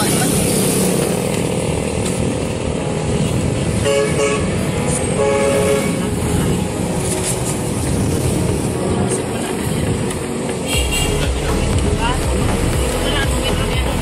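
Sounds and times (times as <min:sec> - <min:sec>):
street traffic: 0:00.0 - 0:14.0
vehicle horn tooting: 0:03.8 - 0:06.1, 0:10.6 - 0:11.4.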